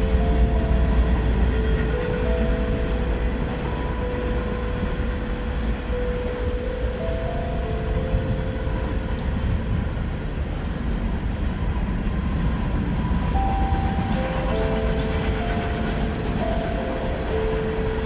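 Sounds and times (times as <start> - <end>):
passing train: 0.0 - 18.0
steel tongue drum notes ringing: 13.2 - 18.0.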